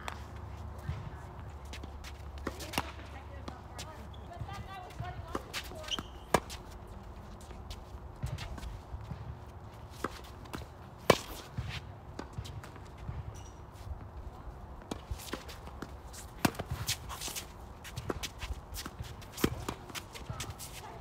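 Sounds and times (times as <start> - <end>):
ball bouncing on court: 0.8 - 6.6, 8.2 - 9.4, 14.8 - 21.0
tennis ball racket hits: 1.7 - 6.7, 9.9 - 13.6, 14.8 - 21.0.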